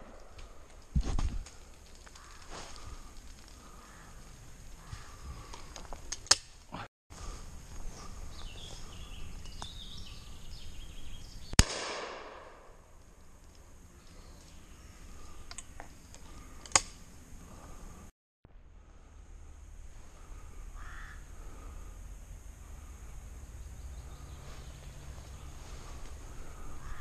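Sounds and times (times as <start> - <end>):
short sharp cracks: 11.6 - 12.8
shotgun shot: 11.6 - 12.8.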